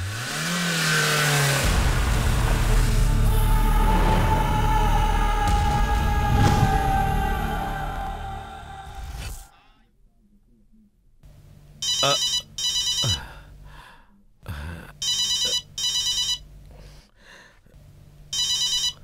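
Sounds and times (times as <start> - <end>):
phone ringing with bell ringtone: 11.8 - 13.2, 15.0 - 16.4, 18.3 - 19.0.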